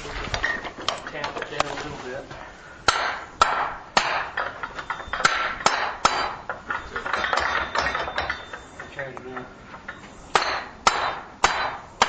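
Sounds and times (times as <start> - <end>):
metal on metal knocks: 2.9 - 11.9.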